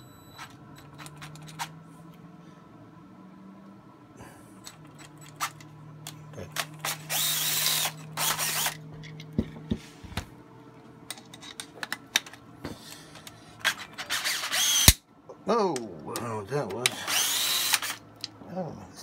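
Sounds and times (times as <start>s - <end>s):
low steady hum: 0.0s - 19.0s
loud rasping bursts: 6.7s - 8.8s, 14.0s - 15.0s, 16.8s - 18.0s.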